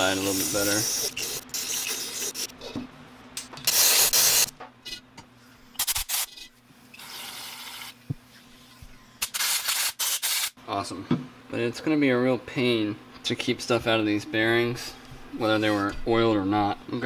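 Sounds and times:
compressed air hissing blasts: 3.7s - 4.5s.

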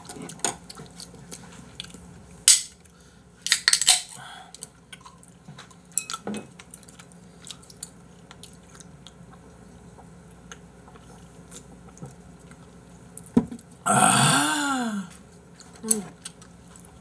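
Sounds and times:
soft chewing: 0.0s - 3.0s, 4.5s - 13.8s, 15.1s - 17.0s
breathy vocal exclamation: 13.9s - 15.2s.

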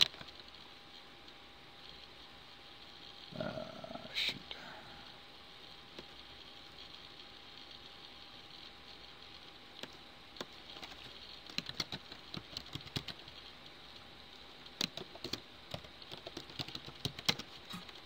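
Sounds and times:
background hiss: 0.0s - 18.0s.

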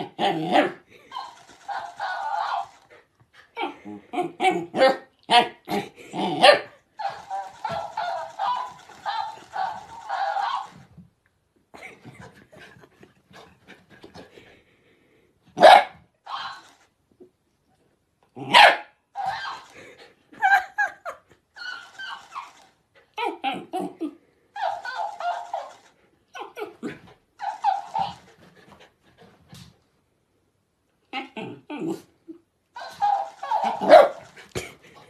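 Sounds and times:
dog barking: 6.4s - 10.7s, 15.6s - 16.7s, 18.5s - 19.7s, 32.8s - 34.3s
toy repeating barks in squeaky voice: 7.1s - 10.8s, 15.6s - 16.7s.

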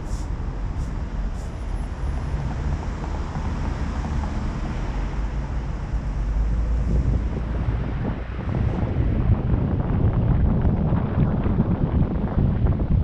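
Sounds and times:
road noise: 0.0s - 13.0s
wind on microphone: 5.7s - 13.0s.

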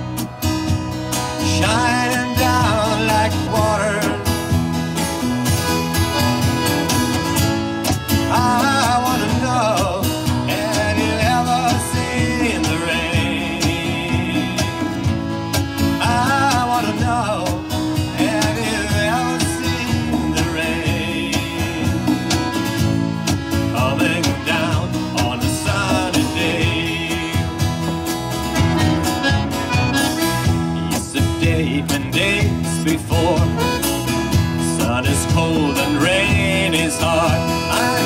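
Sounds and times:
accordion: 0.0s - 38.0s
electric bass: 0.0s - 38.0s
strummed acoustic guitar: 0.0s - 38.0s
congas: 0.2s - 38.0s
person singing: 34.8s - 38.0s.

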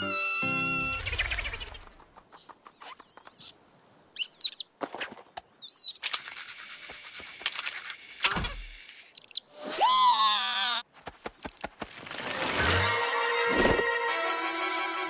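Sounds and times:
falling whistle: 0.0s - 1.2s
squeaky chirping glides: 0.0s - 4.8s, 5.6s - 7.1s, 7.7s - 9.5s, 11.1s - 11.7s, 14.1s - 15.0s.

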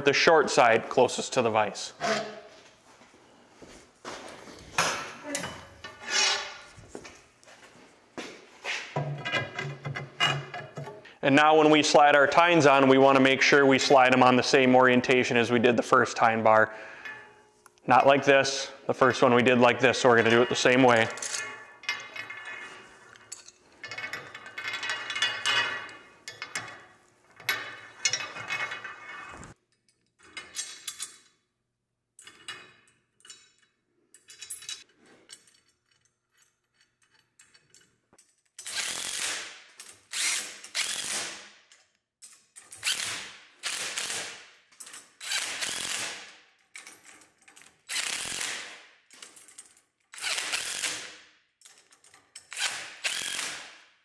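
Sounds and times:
metal tines scraping on metal bar: 5.8s - 6.7s
ratchet wrench ratcheting: 45.2s - 46.2s, 47.9s - 48.6s, 50.2s - 51.0s, 52.4s - 53.6s.

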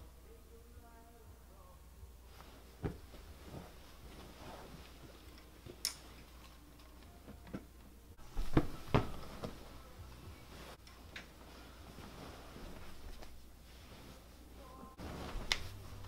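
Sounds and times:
cushion and clothing rustles: 2.3s - 6.6s, 8.2s - 16.0s
body thumping onto cushions: 2.5s - 4.8s, 8.2s - 9.7s, 15.0s - 16.0s.

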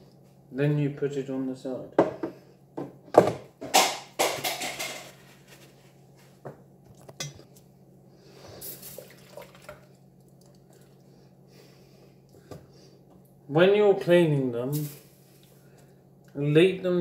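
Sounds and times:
plastic parts rattling on wire rack: 3.7s - 5.2s.

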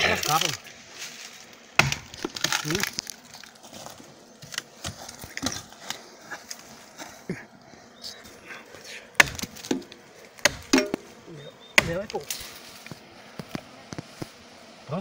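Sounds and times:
axe striking tree trunk: 1.8s - 3.1s, 9.2s - 11.1s, 11.8s - 12.2s
splintered wood cracking: 1.8s - 3.6s, 9.2s - 11.1s.

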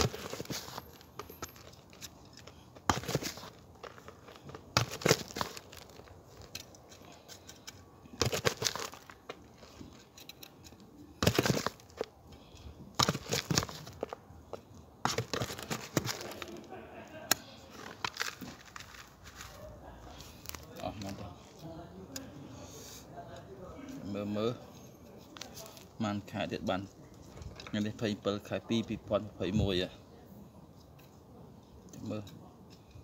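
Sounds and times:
soil rustling from trowel: 0.0s - 14.2s, 15.0s - 16.7s, 17.3s - 21.4s.

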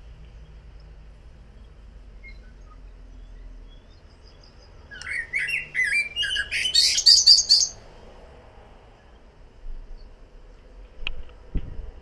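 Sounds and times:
blackbird singing: 1.6s - 7.8s.

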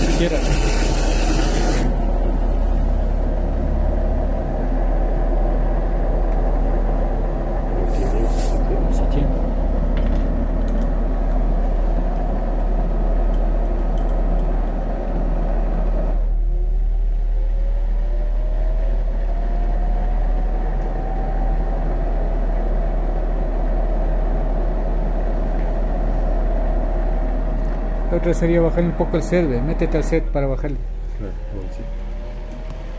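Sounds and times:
pump motor humming: 0.0s - 4.5s.

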